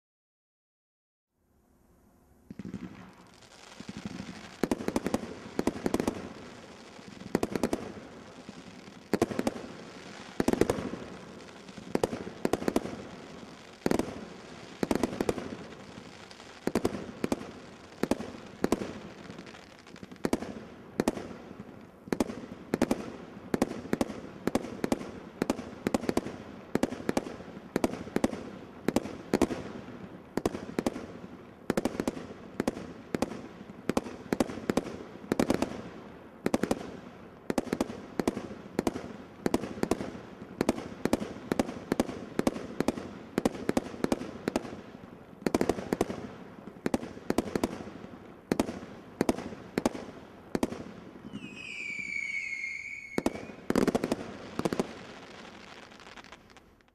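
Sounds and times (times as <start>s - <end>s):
firework shots popping: 48.5s - 56.9s.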